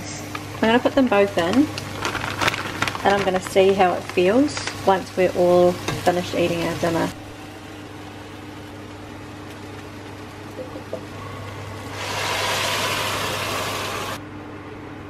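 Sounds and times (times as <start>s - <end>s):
kitchen background hum: 0.0s - 15.0s
loud hissing rush: 11.2s - 14.2s.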